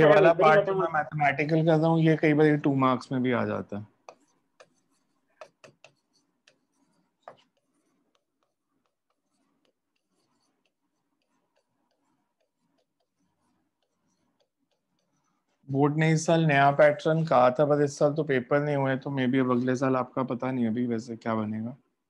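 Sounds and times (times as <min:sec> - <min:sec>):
pen tapping on display board: 0:04.0 - 0:15.2.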